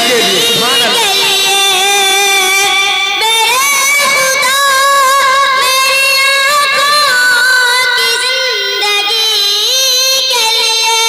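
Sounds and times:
boy singing unaccompanied: 0.0 - 11.0.

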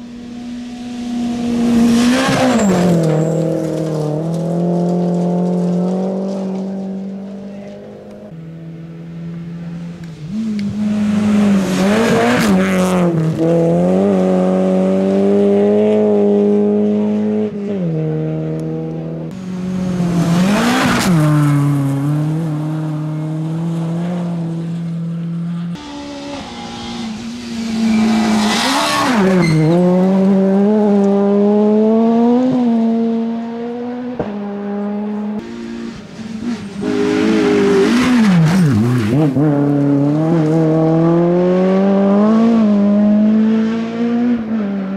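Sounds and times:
rally car engines revving: 0.0 - 44.9
car passing by: 10.2 - 16.0, 19.4 - 32.5.

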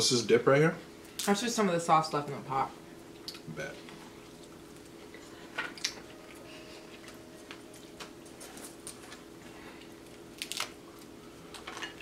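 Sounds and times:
steady low hum: 0.0 - 12.0
crab shells clicking and crackling: 10.4 - 10.8.

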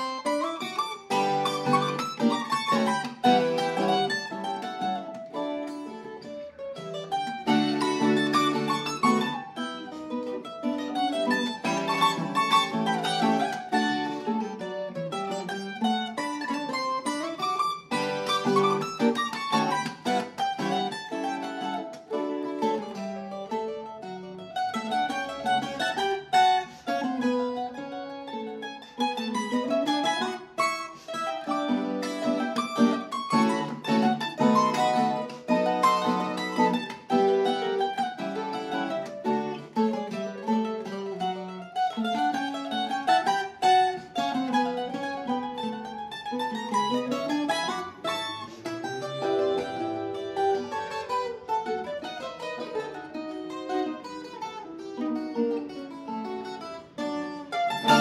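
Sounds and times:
plucked string melody: 0.0 - 58.0
strummed string chords: 28.8 - 58.0.

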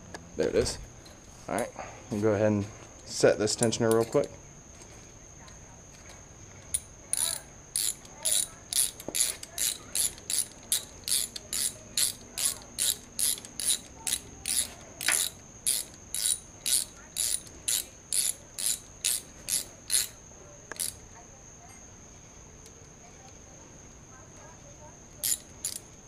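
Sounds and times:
ratchet wrench clicking: 6.7 - 21.0, 25.2 - 26.0.

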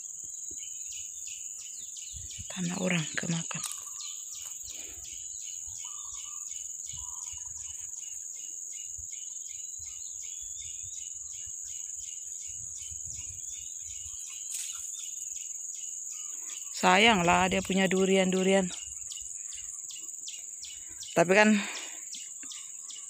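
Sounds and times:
insects droning: 0.0 - 23.0.

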